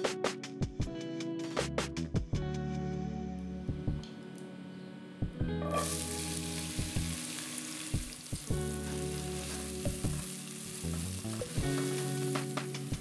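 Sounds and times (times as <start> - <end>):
background music: 0.0 - 13.0
onions sizzling in oil: 5.6 - 13.0.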